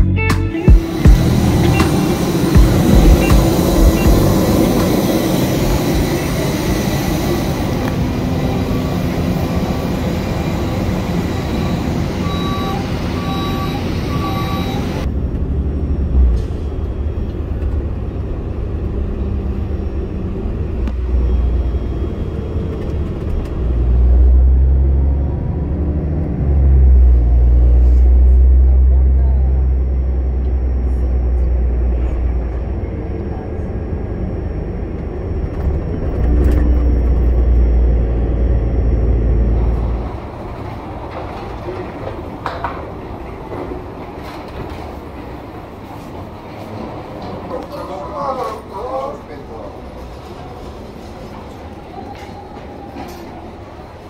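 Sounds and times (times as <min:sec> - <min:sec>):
bus engine rumble: 0:00.0 - 0:54.0
jet noise: 0:00.5 - 0:23.8
short beeps: 0:02.7 - 0:04.3, 0:11.5 - 0:15.0.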